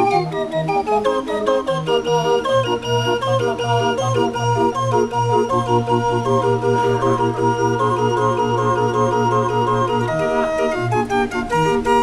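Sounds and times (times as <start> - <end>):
barrel organ pipe melody: 0.0 - 12.0
pulsing bass: 2.1 - 10.3.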